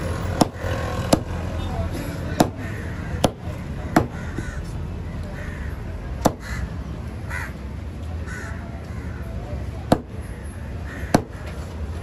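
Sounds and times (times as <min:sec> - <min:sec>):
crows cawing: 0:02.4 - 0:06.7, 0:07.3 - 0:07.6, 0:08.2 - 0:09.3, 0:10.8 - 0:11.5
knife chopping on wooden board: 0:06.2 - 0:06.4, 0:09.9 - 0:10.1.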